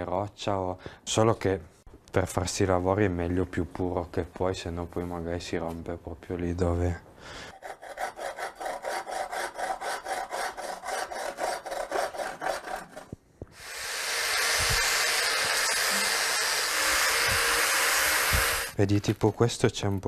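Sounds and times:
angle grinder on stone: 7.5 - 18.8
hand tool scraping stone: 7.5 - 18.8.

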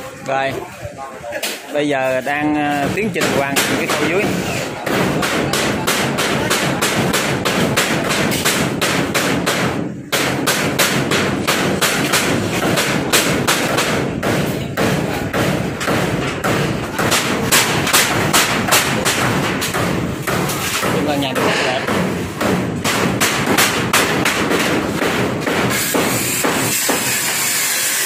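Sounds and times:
rapid hammer blows: 2.1 - 28.0.

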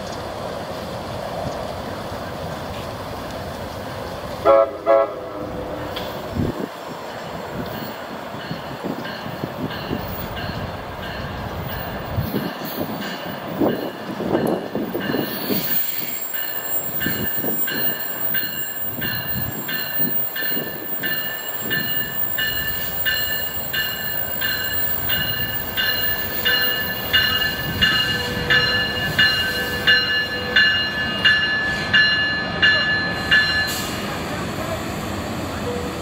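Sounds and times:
train wheels rumbling on rail: 0.0 - 36.0
train bell ringing: 7.2 - 34.2.

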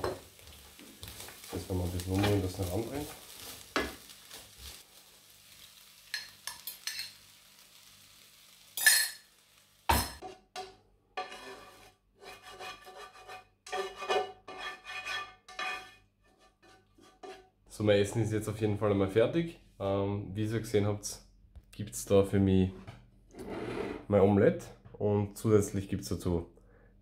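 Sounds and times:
spatula stirring in frying pan: 0.0 - 9.0, 10.2 - 17.6
faint sizzle: 0.0 - 10.1
spatula scraping against pan: 10.2 - 17.6, 23.4 - 24.1.

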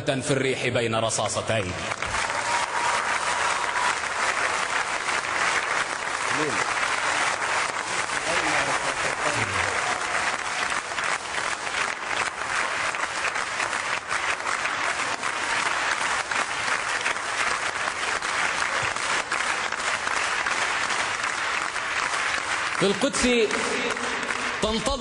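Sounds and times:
audience applauding: 1.7 - 25.0.

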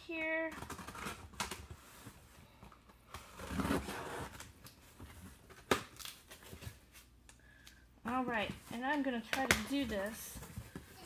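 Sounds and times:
tape and cardboard tearing: 0.6 - 1.6, 3.1 - 4.8.

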